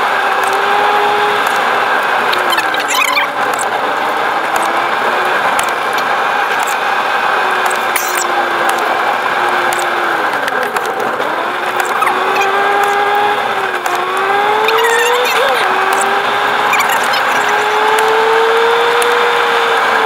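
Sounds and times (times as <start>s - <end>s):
car engine: 0.0s - 20.0s
road noise: 0.0s - 20.0s.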